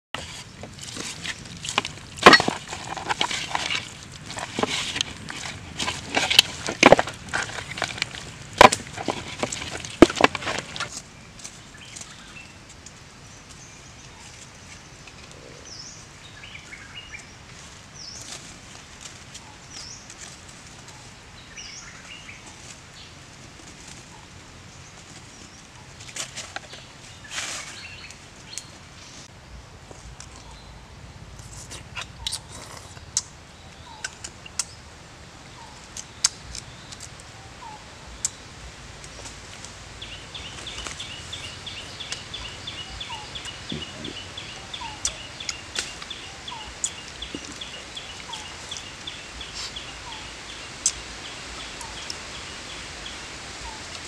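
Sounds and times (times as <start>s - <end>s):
bird chirps: 40.1s - 52.5s.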